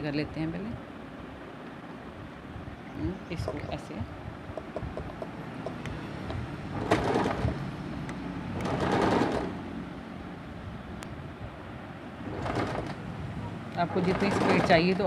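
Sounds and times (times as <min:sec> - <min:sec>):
sewing machine rattling: 0:06.7 - 0:07.7, 0:08.5 - 0:09.7, 0:12.2 - 0:13.2, 0:13.8 - 0:15.0.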